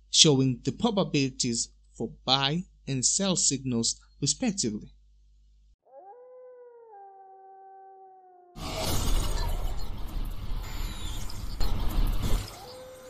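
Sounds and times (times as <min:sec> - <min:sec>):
wolf howl: 0:05.8 - 0:08.7, 0:12.5 - 0:13.0
glitchy static noise: 0:08.6 - 0:13.0.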